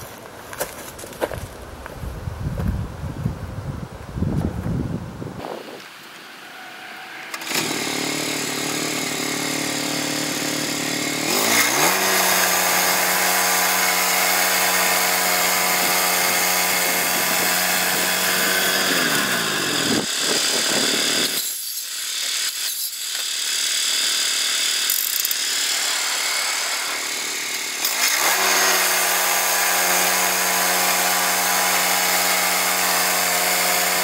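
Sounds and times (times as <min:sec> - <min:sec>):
small gas engine revving: 0:07.1 - 0:34.0
band blade cutting log: 0:07.2 - 0:34.0.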